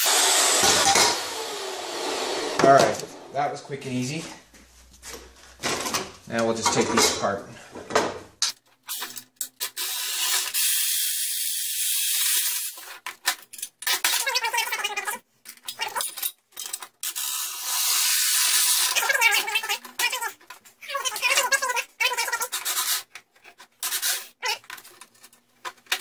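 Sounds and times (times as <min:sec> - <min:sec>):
cordless drill spinning threaded rod: 0:17.0 - 0:20.2.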